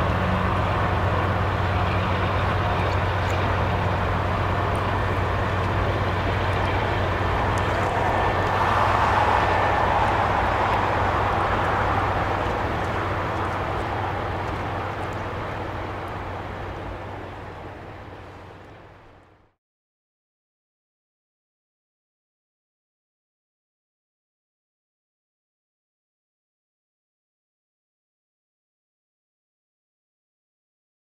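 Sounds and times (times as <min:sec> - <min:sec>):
freight train wheels rumbling on rails: 0:00.0 - 0:19.3
low hum: 0:00.0 - 0:19.5.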